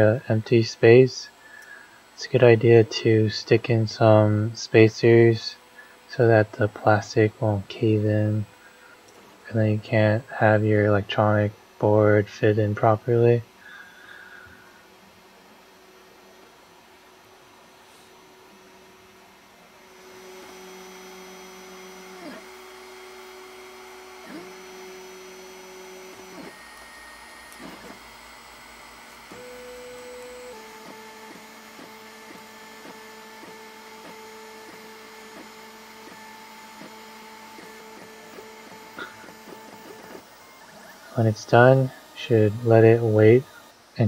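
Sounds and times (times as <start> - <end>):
stepper motors whining: 19.3 - 44.0.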